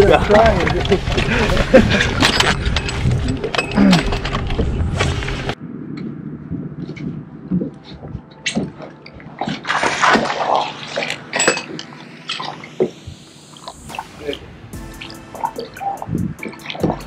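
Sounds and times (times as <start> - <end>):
water sloshing around boat: 6.5 - 14.2.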